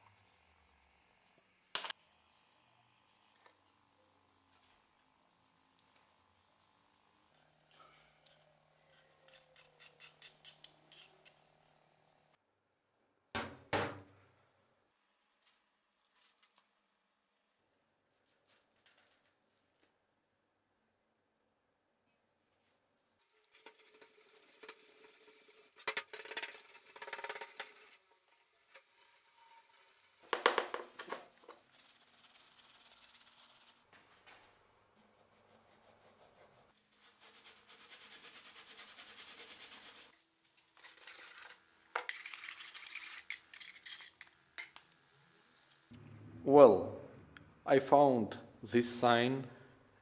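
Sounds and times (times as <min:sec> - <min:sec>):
cloth rubbing on metal: 0:23.3 - 0:33.9.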